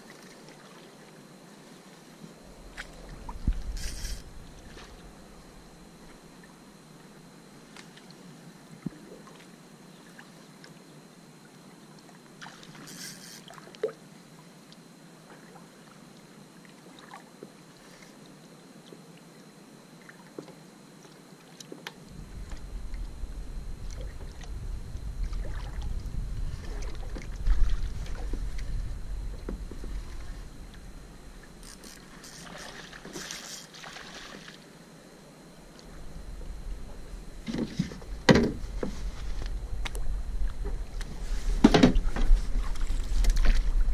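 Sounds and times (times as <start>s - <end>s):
paddle strokes: 0.0s - 5.4s, 12.4s - 14.0s, 25.2s - 34.7s, 36.7s - 43.9s
water lapping against hull: 0.0s - 10.8s, 11.8s - 14.3s, 15.2s - 19.4s, 20.0s - 34.7s, 35.7s - 43.9s
low rumble: 2.4s - 6.5s, 22.1s - 31.8s, 35.7s - 43.9s
small splashes: 12.4s - 13.9s, 32.0s - 34.7s.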